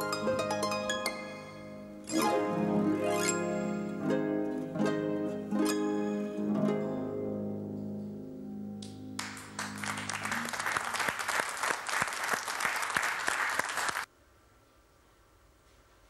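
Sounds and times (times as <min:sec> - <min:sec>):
harp chord ringing: 0:00.0 - 0:09.2
applause: 0:09.2 - 0:14.1.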